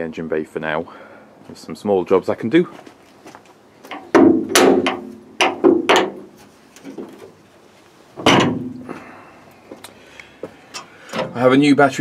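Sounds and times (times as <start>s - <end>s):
metal bonnet clunks: 3.9s - 7.4s, 8.2s - 9.0s, 10.8s - 11.4s.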